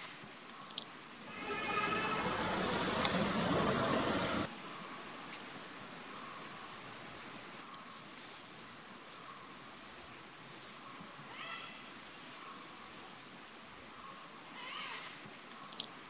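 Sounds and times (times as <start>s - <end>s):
rumbling noise: 1.2s - 4.5s.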